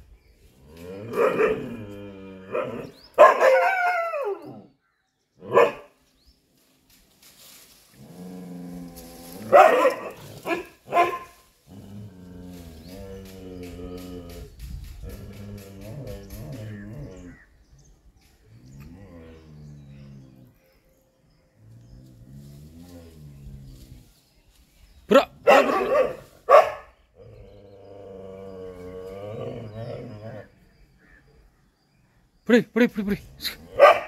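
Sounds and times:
dog barking: 1.2s - 1.7s, 2.5s - 4.4s, 5.4s - 6.0s, 9.5s - 11.4s, 25.4s - 26.9s, 33.7s - 34.0s.

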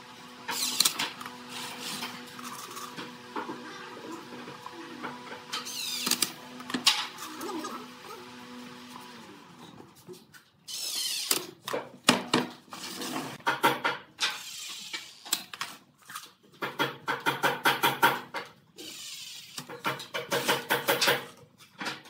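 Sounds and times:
impact driver driving screws: 0.5s - 2.9s, 5.5s - 6.8s.

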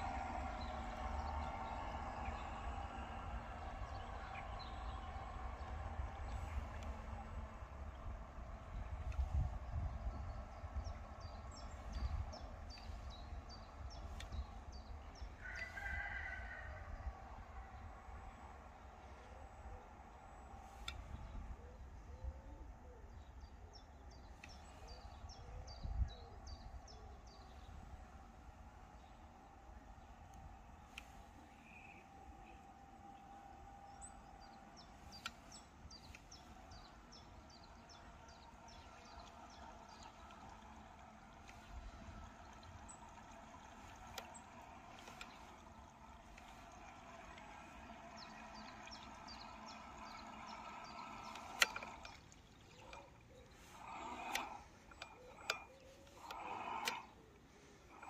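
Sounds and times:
wind rumbling on microphone: 0.0s - 57.1s
small bird calling: 19.2s - 58.0s.

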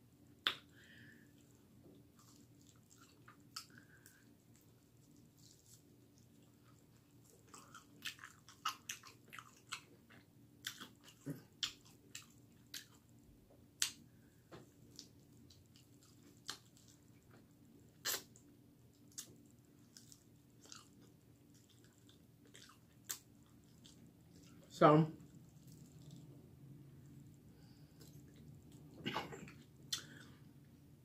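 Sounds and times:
mouth smacks: 0.4s - 0.7s, 18.0s - 18.4s, 29.0s - 30.3s
chewing and crunching: 1.2s - 13.2s, 13.8s - 30.5s.

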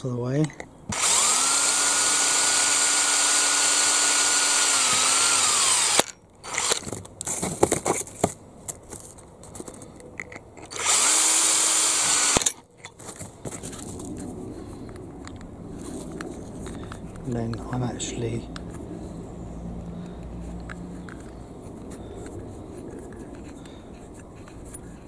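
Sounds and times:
handling clicks and knocks: 0.3s - 0.8s, 20.0s - 25.0s
small power drill boring: 0.9s - 6.9s, 10.7s - 12.6s.

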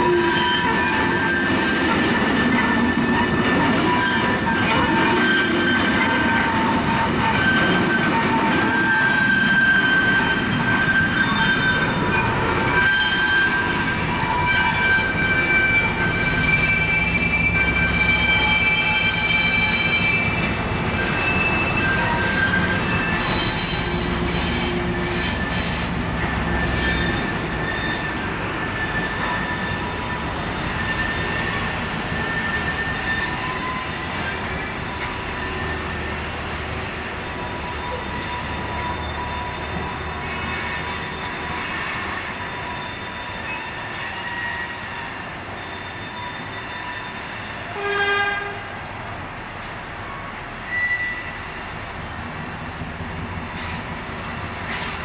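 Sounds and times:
wheels squealing on track: 0.0s - 48.2s, 50.0s - 51.7s
locomotive horn toot: 46.2s - 48.8s.

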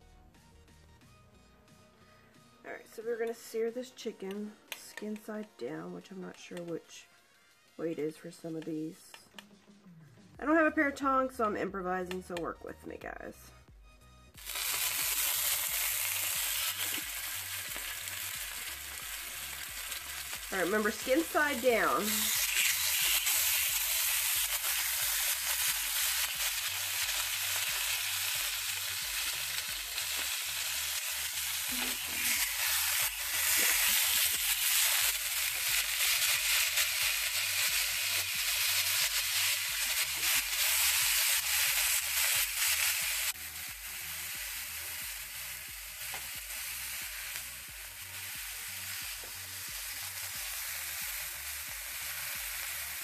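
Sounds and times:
chicken sizzling in oil: 14.4s - 53.0s.

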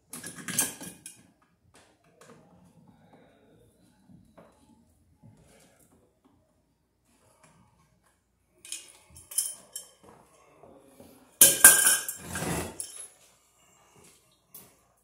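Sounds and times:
metal box clinking and clattering: 0.1s - 1.2s, 11.4s - 13.0s.

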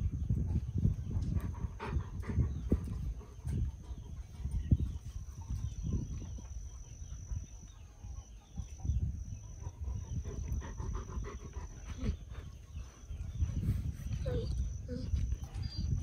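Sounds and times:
dog low vocal sounds: 9.6s - 16.0s.

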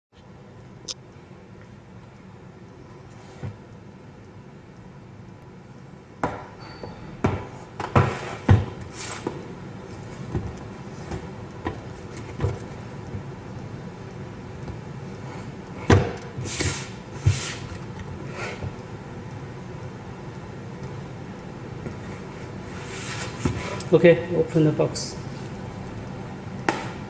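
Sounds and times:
cardboard brushing scrapes: 22.2s - 23.8s.

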